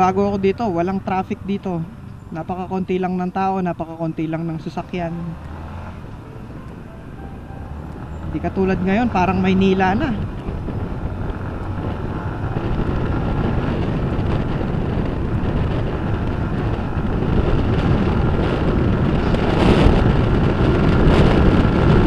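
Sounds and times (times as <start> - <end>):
road noise: 0.0 - 22.0
wind buffeting microphone: 0.0 - 22.0
motorcycle engine: 4.4 - 22.0.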